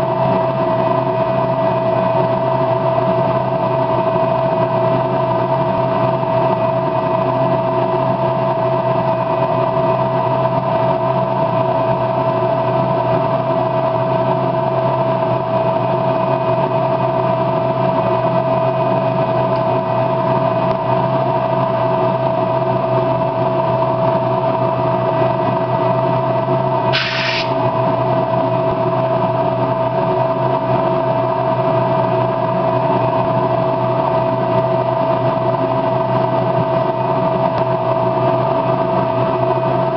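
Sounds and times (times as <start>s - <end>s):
machine hum with pitched tone: 0.0s - 39.9s
spray paint can hiss: 26.9s - 27.6s.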